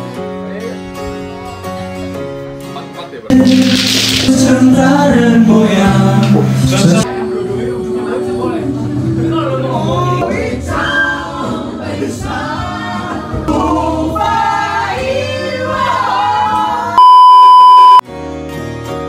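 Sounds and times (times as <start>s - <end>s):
person singing karaoke: 3.3s - 17.0s
high test-tone beep: 17.0s - 18.0s.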